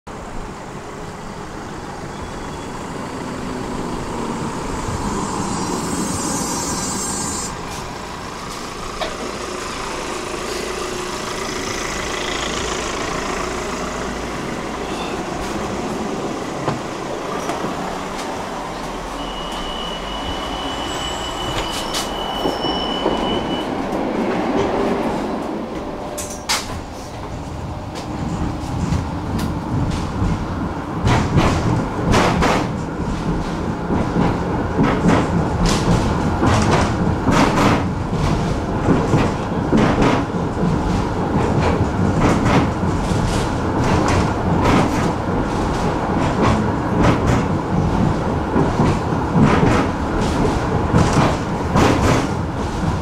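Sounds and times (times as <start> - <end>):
tram running rumble: 0.1 - 53.0
wheels clacking over rail joints: 7.5 - 19.7, 23.8 - 53.0.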